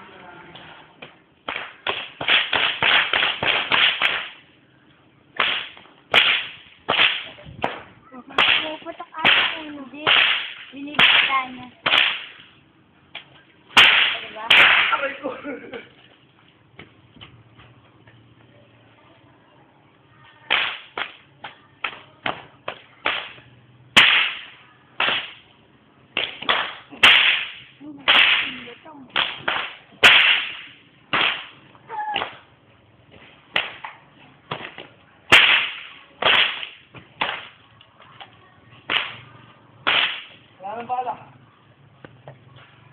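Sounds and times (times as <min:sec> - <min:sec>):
whip cracking: 0:01.4 - 0:04.4, 0:05.4 - 0:12.5, 0:13.2 - 0:15.1, 0:20.5 - 0:25.5, 0:26.2 - 0:32.5, 0:33.5 - 0:37.6, 0:38.9 - 0:39.2, 0:39.8 - 0:40.4.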